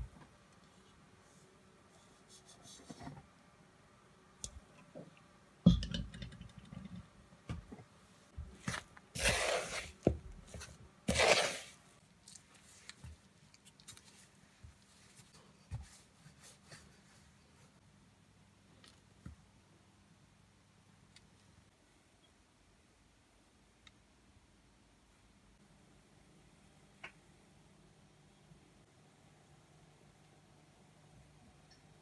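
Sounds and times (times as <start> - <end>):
dough scraping rustles: 8.5 - 11.8.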